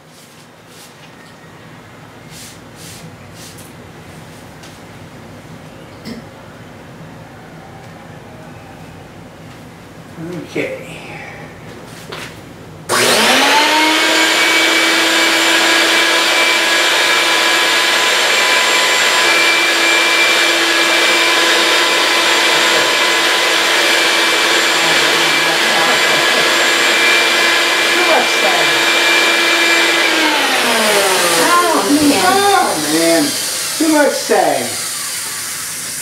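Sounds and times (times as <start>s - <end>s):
vacuum cleaner motor whining: 12.9s - 36.0s.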